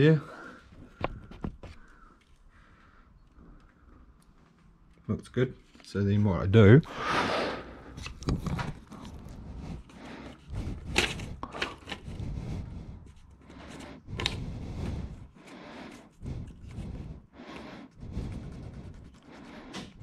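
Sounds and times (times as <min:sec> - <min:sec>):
paper scratching and rustling: 0:17.9 - 0:20.0.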